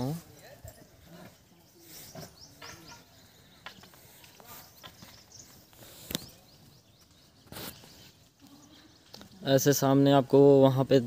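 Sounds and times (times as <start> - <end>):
footsteps on brick path: 1.2 - 9.3.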